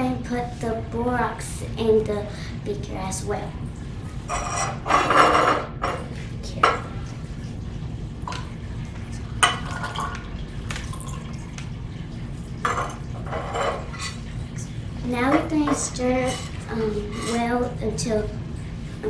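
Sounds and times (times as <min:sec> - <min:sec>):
liquid pouring: 0:06.9 - 0:19.0.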